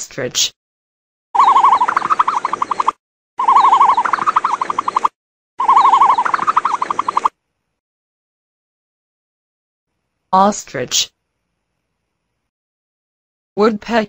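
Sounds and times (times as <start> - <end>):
warbling animal call with trill: 1.4 - 7.3.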